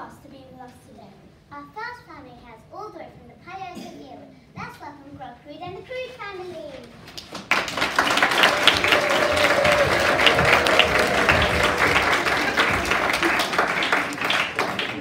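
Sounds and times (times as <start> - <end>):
audience applause: 7.5 - 15.0.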